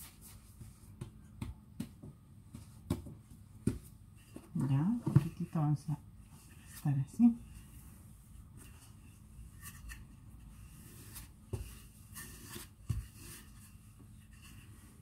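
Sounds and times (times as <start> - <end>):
rolling pin rubbing dough: 4.1 - 15.0.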